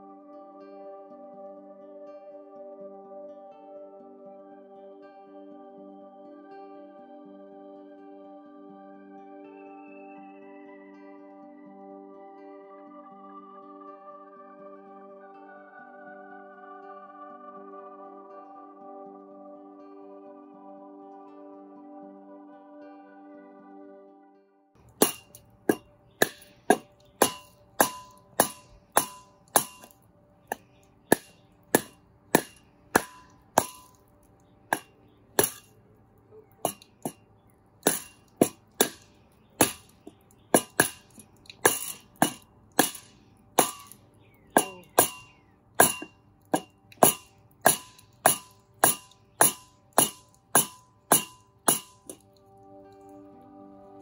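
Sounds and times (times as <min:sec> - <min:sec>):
mallet knocking on wood block: 0:25.0 - 0:29.9, 0:30.5 - 0:34.0, 0:35.4 - 0:35.6, 0:37.8 - 0:39.0, 0:40.6 - 0:43.0, 0:44.6 - 0:52.2.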